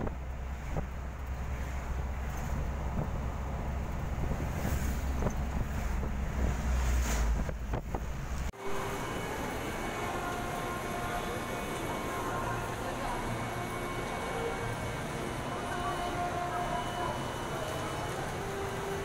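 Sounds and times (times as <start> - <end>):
wind buffeting microphone: 0.0 - 8.5.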